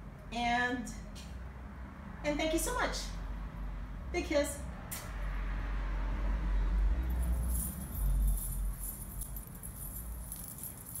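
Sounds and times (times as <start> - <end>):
metal coins jingling: 7.1 - 11.0.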